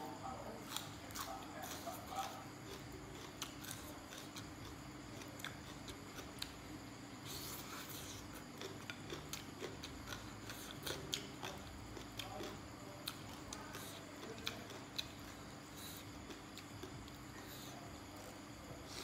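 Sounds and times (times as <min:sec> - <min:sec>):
crunchy chewing: 0:00.0 - 0:19.0
faint steady hum: 0:00.0 - 0:19.0.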